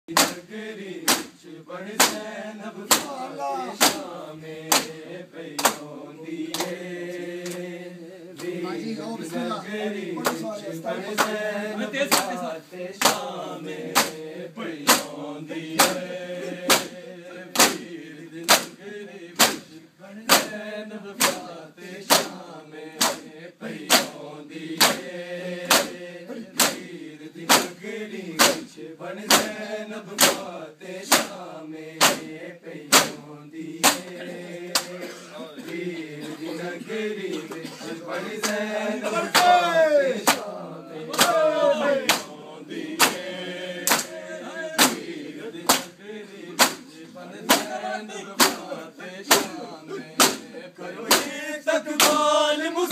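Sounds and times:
chest-beating slaps: 0.1 - 0.4, 1.0 - 1.4, 2.0 - 2.2, 2.9 - 4.1, 4.7 - 5.0, 5.6 - 5.9, 6.5 - 6.8, 12.1 - 12.4, 13.0 - 13.3, 13.9 - 14.2, 14.8 - 17.8, 18.4 - 18.8, 19.4 - 19.7, 20.3 - 20.5, 21.2 - 21.5, 22.1 - 22.4, 23.0 - 24.2, 24.8 - 26.0, 26.6 - 26.8, 27.5 - 27.8, 28.4 - 28.7, 29.3 - 29.6, 30.2 - 30.4, 31.1 - 31.4, 32.0 - 32.3, 32.9 - 33.2, 33.8 - 35.0, 39.3 - 39.6, 40.2 - 40.5, 41.1 - 42.4, 43.0 - 44.2, 44.8 - 45.9, 46.6 - 46.9, 47.5 - 47.7, 48.4 - 48.7, 49.3 - 49.6, 50.2 - 50.5, 51.1 - 51.3, 52.0 - 52.2
men chanting in unison: 0.1 - 52.9.

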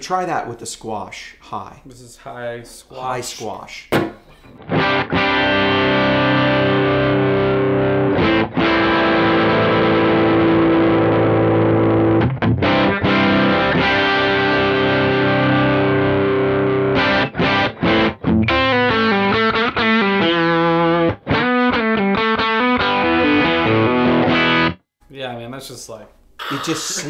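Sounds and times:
picked guitar notes: 4.4 - 24.8
compressed electric guitar chords: 4.6 - 24.8.

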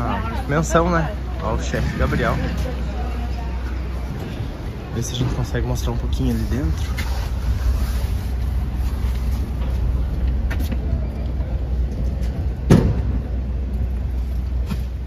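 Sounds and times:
traffic engine rumble: 0.0 - 15.0
sharp thump: 12.7 - 13.2.

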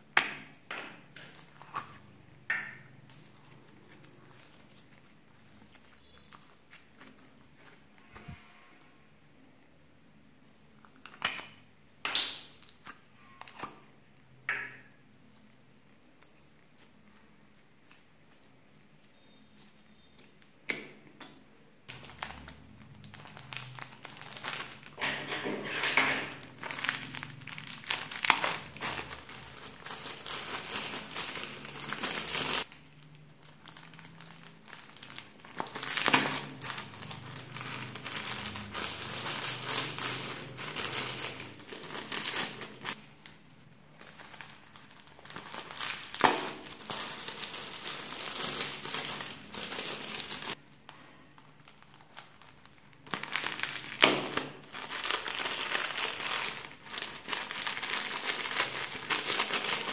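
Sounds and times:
plastic bags crinkling: 1.1 - 8.4, 21.9 - 59.9.

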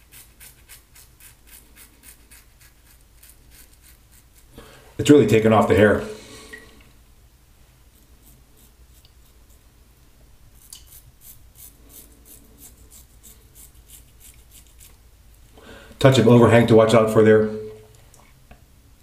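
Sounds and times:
razor scraping stubble: 0.0 - 4.6, 8.2 - 9.6, 10.6 - 15.0.

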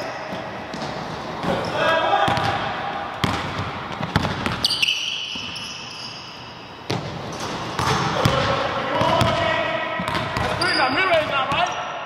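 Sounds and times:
basketball bouncing on wooden floor: 2.3 - 2.6, 3.2 - 4.7, 6.9 - 9.4, 10.0 - 10.6
high-pitched squeak: 4.6 - 6.6.

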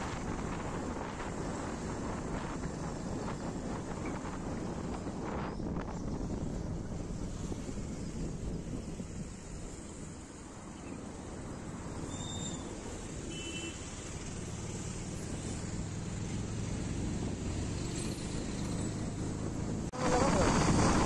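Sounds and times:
motorcycle engine drone: 11.1 - 21.0.

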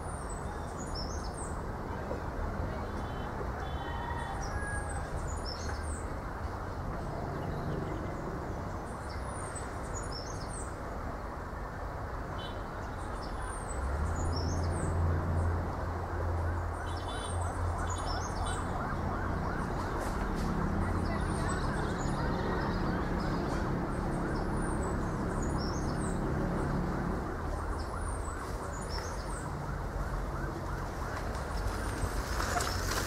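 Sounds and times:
wind through palm leaves: 0.0 - 33.0
birds chirping: 16.6 - 31.1.

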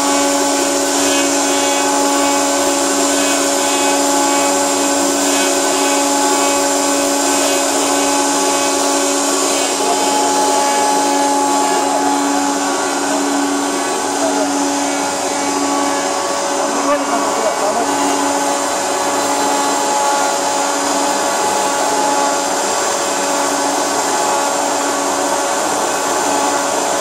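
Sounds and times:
milling machine motor whine: 0.0 - 27.0.

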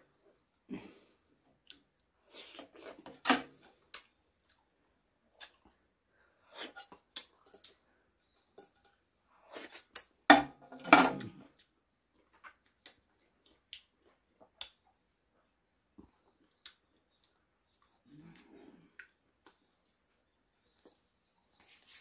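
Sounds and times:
person chewing: 11.2 - 14.8.

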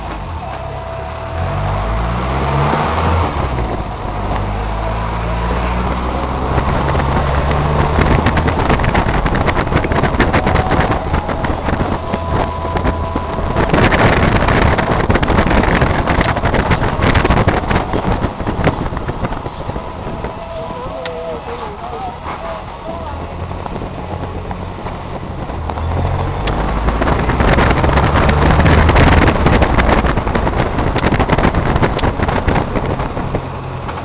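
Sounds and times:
car engine hum: 0.0 - 34.0
road rumble: 0.0 - 34.0
sharp clicks and rattles: 5.8 - 20.4, 22.2 - 34.0.

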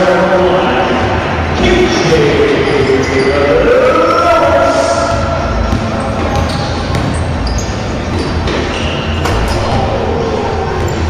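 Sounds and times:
echoing hall noise: 0.0 - 11.0
basketball bouncing on court: 5.1 - 9.8.

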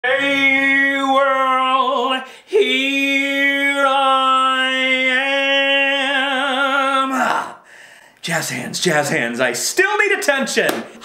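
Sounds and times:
man singing long held notes: 0.0 - 7.6.

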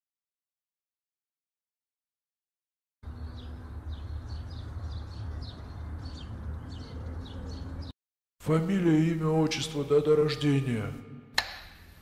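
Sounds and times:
small birds chirping: 3.0 - 8.0.

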